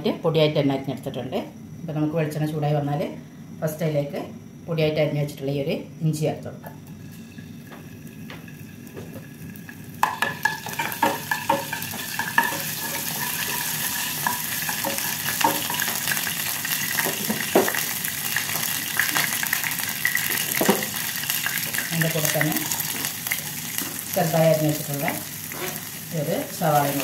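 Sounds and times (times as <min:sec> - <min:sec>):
ginger sizzling in oil: 0:06.9 - 0:27.0
spatula scraping a pan: 0:10.4 - 0:16.2, 0:25.4 - 0:26.0.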